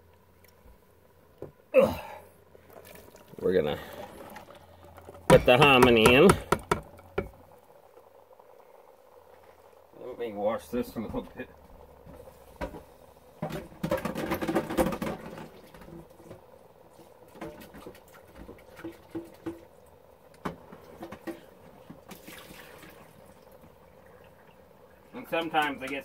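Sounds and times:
water splashing in container: 0:02.6 - 0:07.4, 0:22.0 - 0:23.6.

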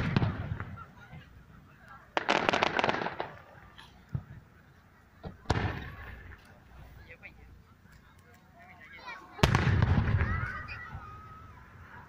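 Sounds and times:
fireworks booming: 0:00.0 - 0:01.3, 0:02.1 - 0:04.5, 0:05.2 - 0:06.4, 0:09.4 - 0:11.1
fireworks crackling: 0:00.0 - 0:12.0.

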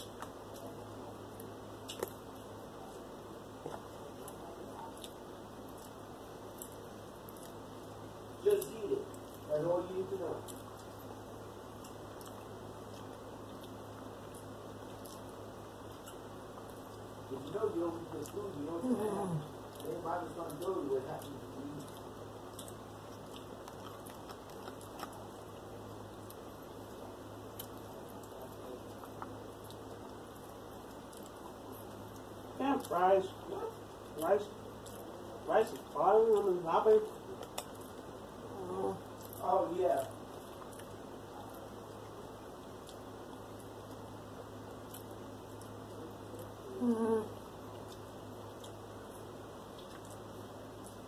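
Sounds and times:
quiet chewing: 0:00.0 - 0:51.0
steady low hum: 0:00.0 - 0:51.0.

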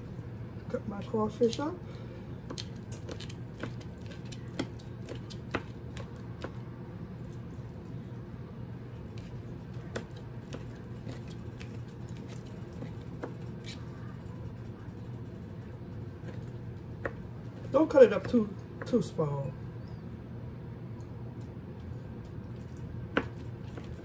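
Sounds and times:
steady low hum: 0:00.0 - 0:24.0
knife chopping on a cutting board: 0:02.5 - 0:06.6, 0:17.0 - 0:19.0, 0:23.1 - 0:24.0.

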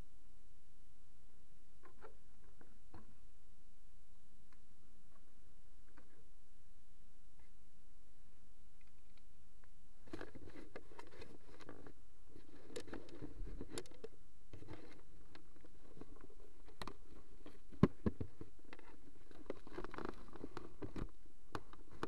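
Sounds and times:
low hiss: 0:00.0 - 0:22.0
rustling: 0:08.8 - 0:22.0.

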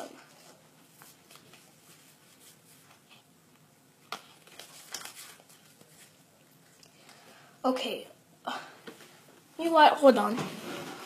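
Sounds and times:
cards rustling: 0:04.0 - 0:07.2.

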